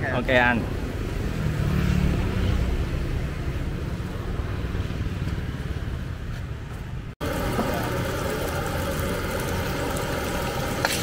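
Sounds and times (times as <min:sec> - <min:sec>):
motorbike traffic rumble: 0:00.0 - 0:11.0
gas wok burner roaring: 0:07.2 - 0:11.0.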